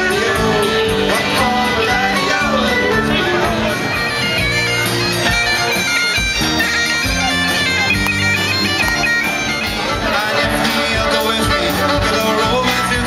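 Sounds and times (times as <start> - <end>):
bagpipe music: 0.0 - 13.0.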